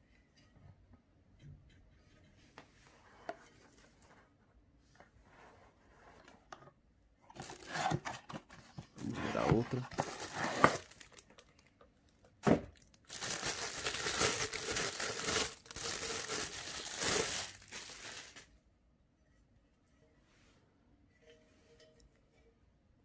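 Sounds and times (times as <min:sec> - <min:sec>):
plastic bag crinkling: 0:07.4 - 0:07.8, 0:09.6 - 0:11.7, 0:12.7 - 0:18.5.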